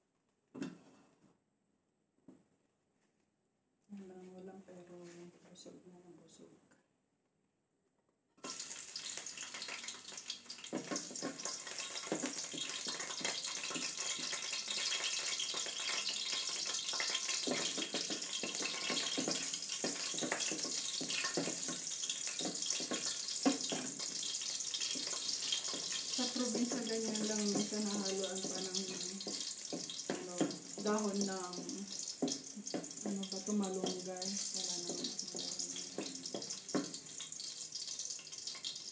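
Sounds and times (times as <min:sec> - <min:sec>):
oil sizzling in a wok: 0:08.4 - 0:38.9
spatula scraping and tapping pan: 0:08.4 - 0:38.9.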